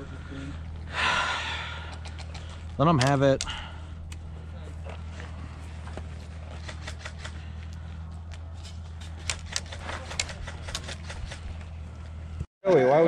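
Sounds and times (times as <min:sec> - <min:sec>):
steady low hum: 0:00.0 - 0:12.5
sharp clicks and taps: 0:01.9 - 0:03.5.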